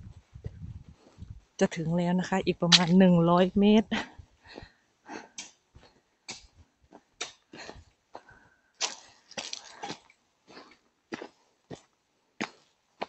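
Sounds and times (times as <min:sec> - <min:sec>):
footsteps crunching on dry leaves: 0:08.8 - 0:10.7.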